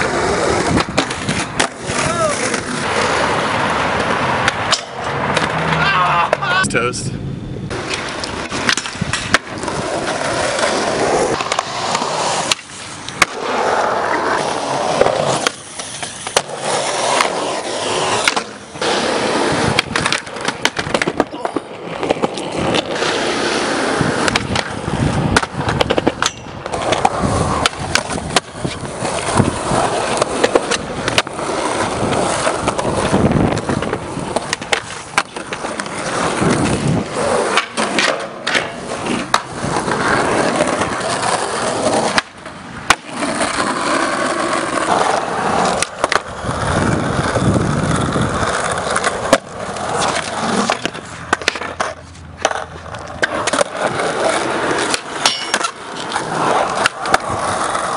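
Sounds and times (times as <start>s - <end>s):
skateboard clacking and landing: 0.0s - 6.6s, 7.7s - 57.9s
skateboard wheels rolling on concrete: 0.0s - 57.9s.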